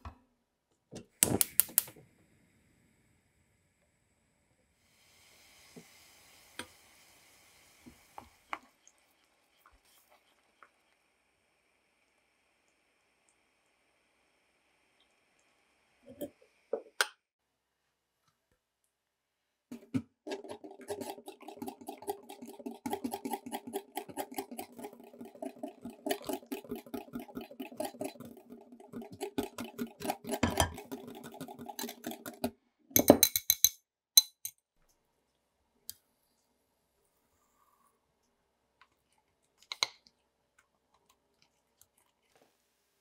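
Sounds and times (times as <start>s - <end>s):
whisk beating in a glass bowl: 20.3s - 33.6s.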